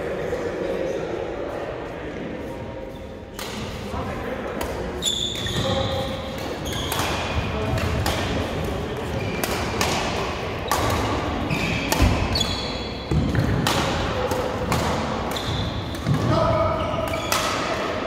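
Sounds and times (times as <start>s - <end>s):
rackets striking shuttlecocks: 4.5s - 16.4s, 17.0s - 17.9s
shoe squeaks on court: 5.0s - 6.0s, 6.6s - 7.0s.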